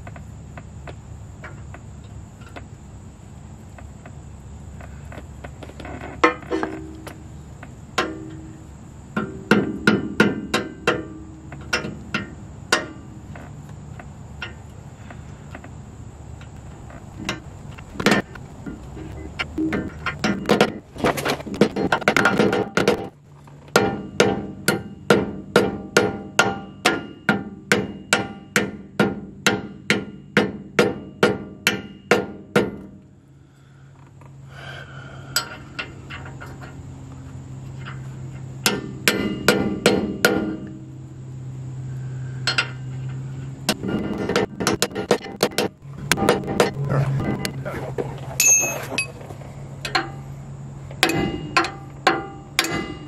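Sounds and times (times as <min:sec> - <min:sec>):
rawhide hammer tapping steel: 0:51.0 - 0:53.0.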